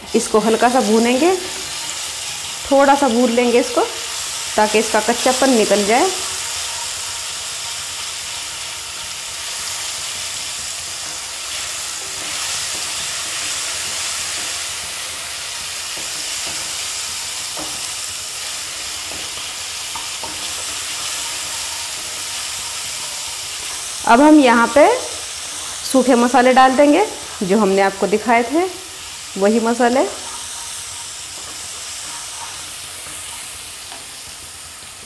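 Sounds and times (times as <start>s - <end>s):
onions sizzling in hot oil: 0.0s - 35.0s
spatula stirring: 30.1s - 34.3s.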